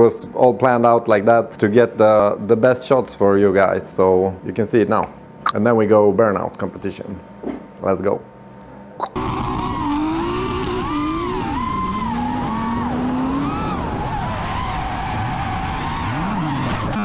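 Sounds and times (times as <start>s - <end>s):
car engine revving: 9.2s - 17.0s
spinning tyres rushing: 9.2s - 17.0s.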